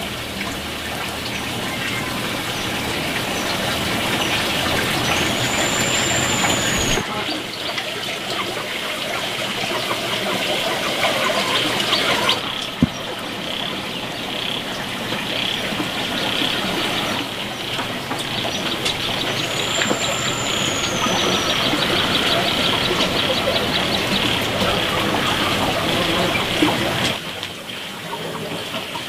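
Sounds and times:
running water: 0.0 - 29.0
small bird chirps: 4.2 - 7.0, 18.2 - 24.4
high whistled bird call: 4.5 - 7.0, 18.5 - 24.4.

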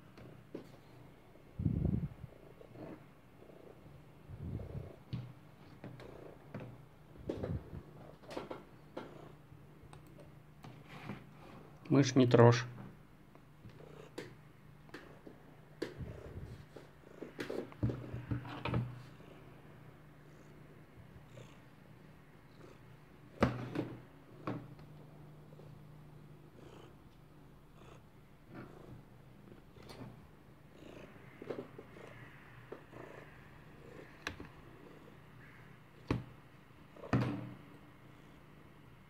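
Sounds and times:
cat purring: 0.2 - 10.3, 13.6 - 36.1
knocks and rustles against desk: 17.2 - 19.0, 23.4 - 24.8.

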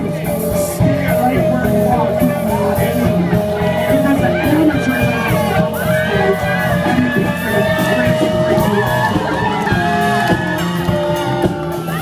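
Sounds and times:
person singing: 0.0 - 10.2
live rock band playing: 0.0 - 12.0.

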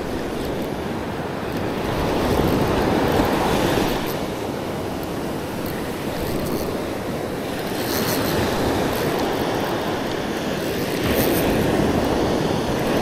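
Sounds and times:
wind rumbling on microphone: 0.0 - 13.0
surf washing up beach: 1.0 - 13.0.

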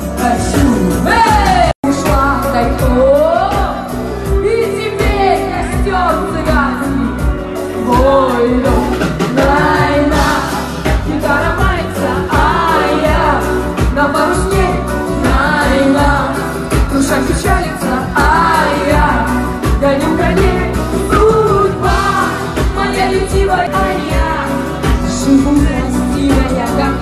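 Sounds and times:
pop backing track with bass: 0.0 - 27.0
woman singing karaoke: 0.0 - 27.0.

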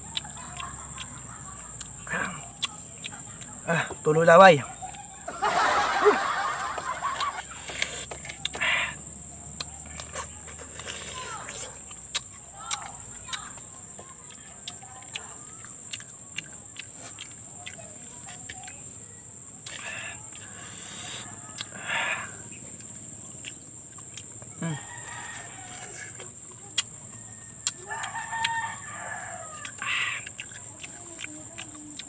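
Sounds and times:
rooster crowing: 4.3 - 7.4, 24.6 - 26.2, 27.0 - 30.0.

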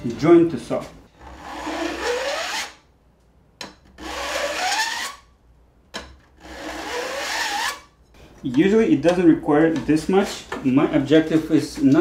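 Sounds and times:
file rasping on saw teeth: 1.2 - 2.8, 4.0 - 5.2, 6.4 - 7.9.

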